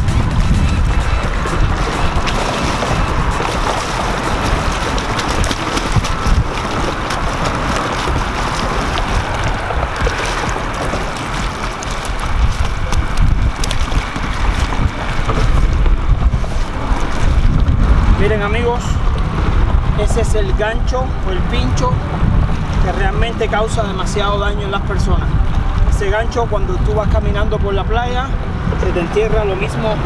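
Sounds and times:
waves lapping against rocks: 0.0s - 30.0s
wind buffeting microphone: 0.0s - 30.0s.

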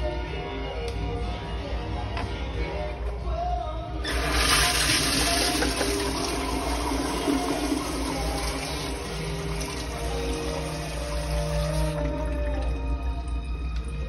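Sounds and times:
toilet flushing: 4.0s - 13.9s.

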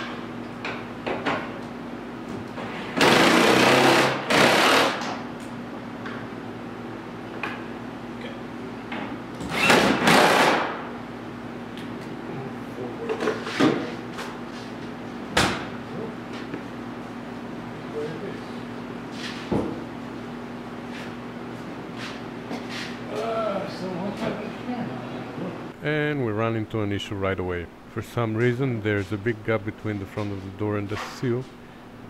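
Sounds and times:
power tool bursts: 3.0s - 5.1s, 9.5s - 10.8s.

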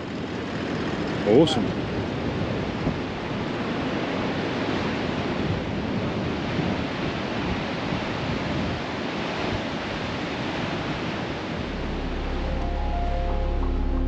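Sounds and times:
wind buffeting microphone: 0.0s - 12.8s
ocean surf breaking: 0.0s - 14.0s.

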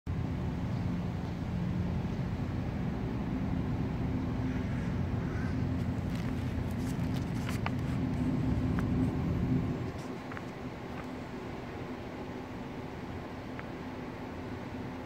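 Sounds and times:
vehicle engine rumble: 0.1s - 15.0s
paper and plastic bag rustling: 5.8s - 9.1s.

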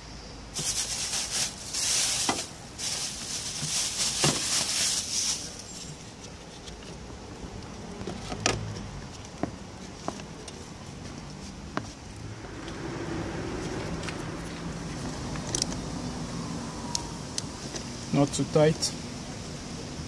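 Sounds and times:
plastic sheet crinkling: 0.6s - 6.6s.

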